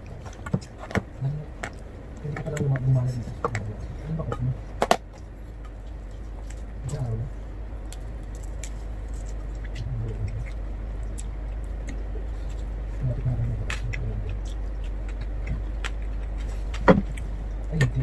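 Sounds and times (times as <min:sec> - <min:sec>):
steady low hum: 0:00.0 - 0:18.0
person chewing: 0:07.8 - 0:17.9.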